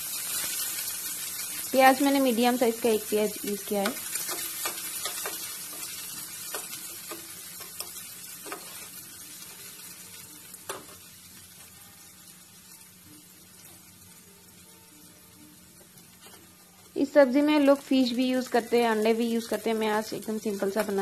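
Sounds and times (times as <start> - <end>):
onions sizzling in hot oil: 0.0 - 21.0
spatula scraping a pan: 4.1 - 9.0.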